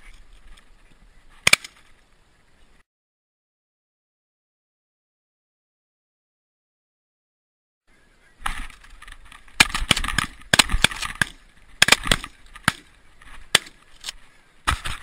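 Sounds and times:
shotgun shots: 9.6s - 12.9s.

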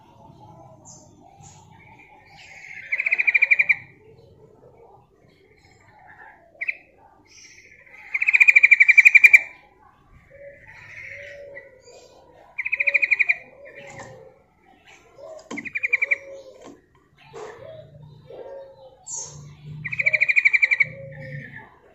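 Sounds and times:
bird chattering trills: 0.0s - 4.6s, 5.5s - 9.6s, 10.2s - 21.9s.

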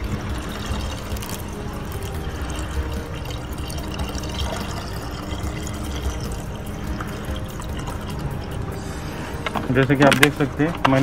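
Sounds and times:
liquid pouring from plastic bottle: 0.0s - 8.7s.

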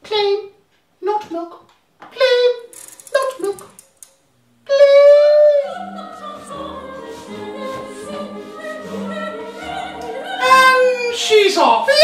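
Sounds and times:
orchestral accompaniment: 5.6s - 11.8s.

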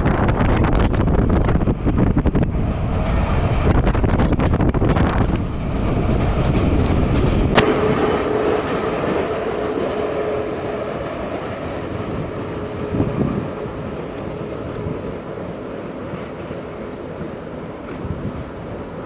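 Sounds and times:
train rumbling and clattering: 0.0s - 19.0s
train whine: 0.0s - 19.0s
wind on microphone: 0.0s - 19.0s.

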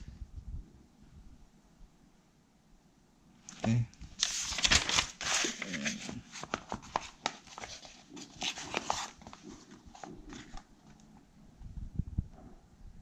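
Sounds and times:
paper pages rustling: 3.5s - 11.2s.

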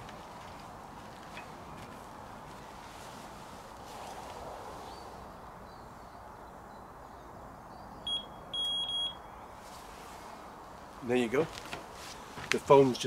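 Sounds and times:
bite alarm beeping: 8.1s - 9.3s.

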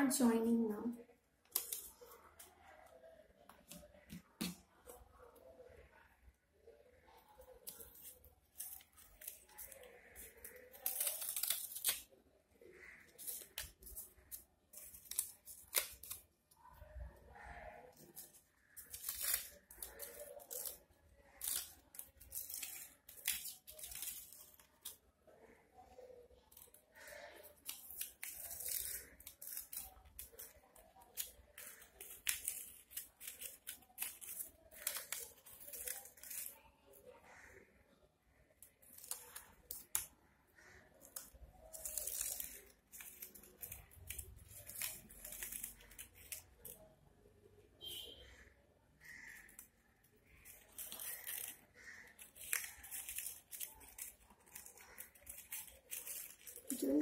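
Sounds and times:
paper rustling and crinkling: 7.0s - 37.1s, 50.2s - 57.0s.

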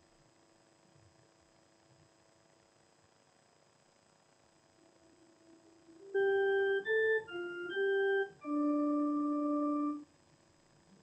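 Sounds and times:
organ playing short phrase: 6.0s - 10.0s.

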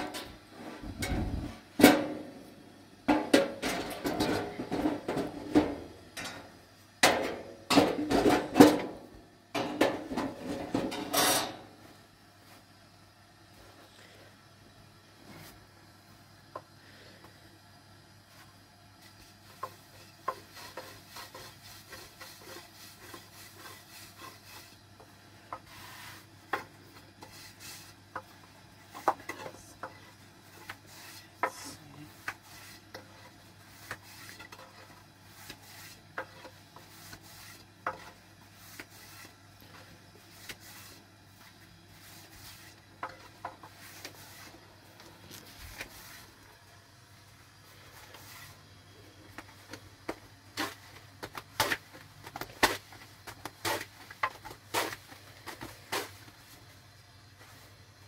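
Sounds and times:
rolling pin rubbing on dough: 18.4s - 44.7s.

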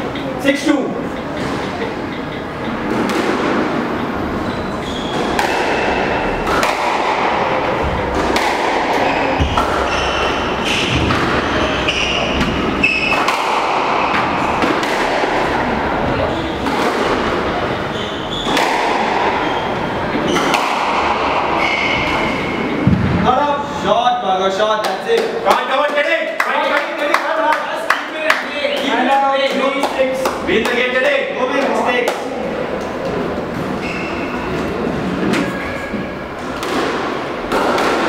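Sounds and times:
squash ball hits echoing: 2.7s - 4.0s, 4.8s - 23.5s, 31.6s - 38.0s
shoes squeaking on wooden floor: 4.1s - 6.4s, 9.0s - 13.2s, 17.7s - 20.6s, 21.3s - 22.8s, 33.6s - 36.6s.

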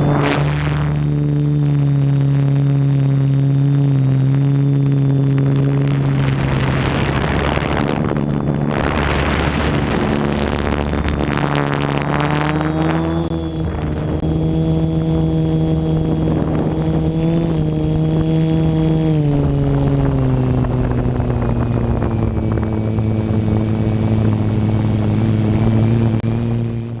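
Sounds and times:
drone propellers droning whine: 0.0s - 27.0s.

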